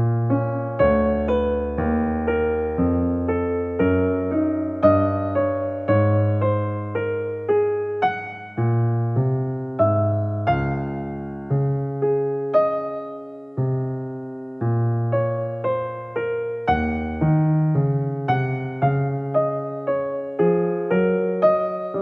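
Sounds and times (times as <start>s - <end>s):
slow piano melody: 0.0s - 22.0s.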